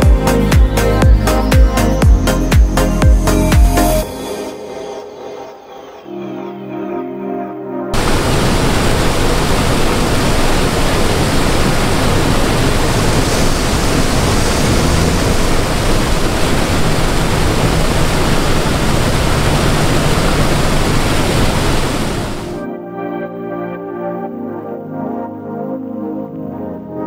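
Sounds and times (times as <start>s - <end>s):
combine harvester rushing noise: 8.0s - 22.6s
low engine hum: 8.0s - 22.6s.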